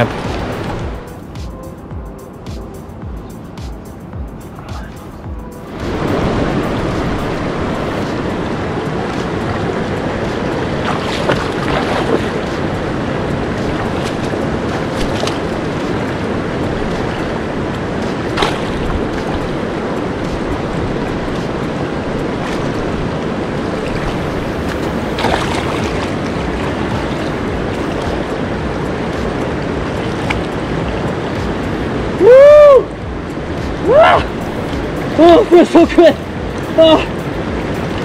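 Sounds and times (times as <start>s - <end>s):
river water rushing over boulders: 0.0s - 38.0s
splashes of wading: 5.7s - 32.4s.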